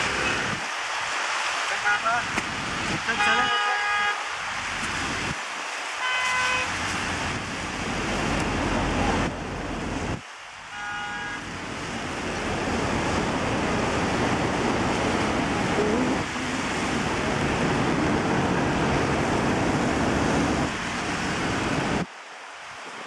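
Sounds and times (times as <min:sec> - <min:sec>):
floodwater rushing: 0:00.0 - 0:23.0
traffic rushing noise: 0:00.0 - 0:23.0
car horn toots: 0:03.2 - 0:04.2, 0:06.0 - 0:06.7, 0:10.7 - 0:11.5.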